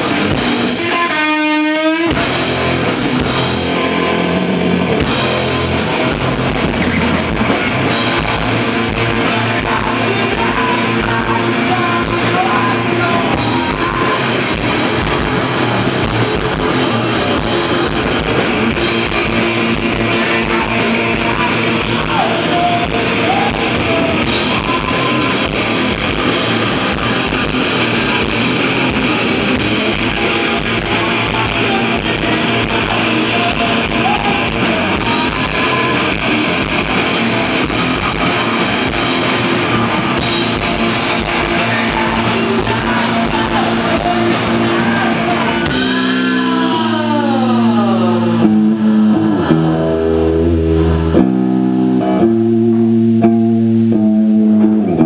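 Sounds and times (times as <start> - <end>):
drum kit with cymbals: 0.0 - 1.4, 2.1 - 47.9
electric guitar: 0.0 - 55.0
person singing: 7.8 - 52.8.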